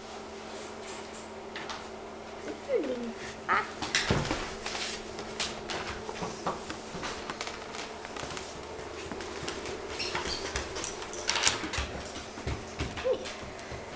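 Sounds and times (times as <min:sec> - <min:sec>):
puppy scrabbling on wooden floor: 0:03.8 - 0:13.9.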